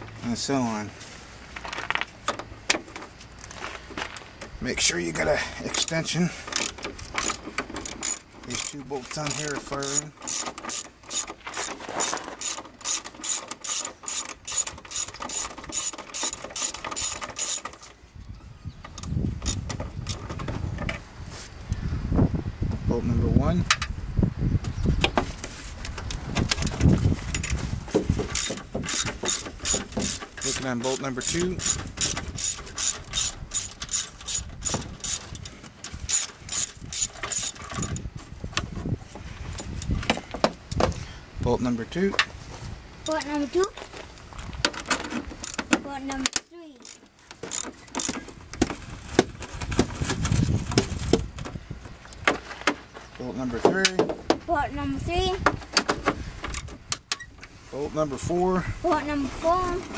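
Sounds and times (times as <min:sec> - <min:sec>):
socket ratchet clicking: 0:06.6 - 0:11.3, 0:12.4 - 0:17.7, 0:19.0 - 0:20.2, 0:28.4 - 0:38.0.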